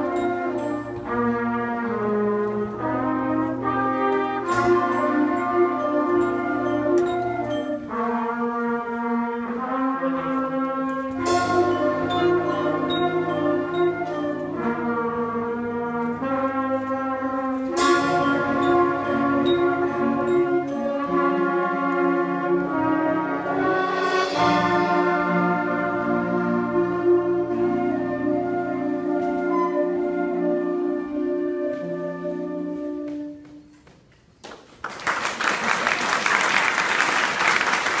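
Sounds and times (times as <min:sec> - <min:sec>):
concert band playing chords: 0:11.1 - 0:16.4, 0:17.3 - 0:29.2
audience applause: 0:34.4 - 0:38.0.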